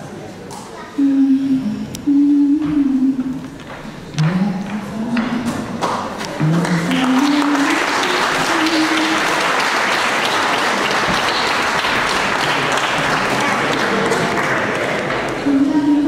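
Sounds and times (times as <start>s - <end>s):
held low notes: 1.0s - 9.3s
audience applauding: 5.8s - 15.5s.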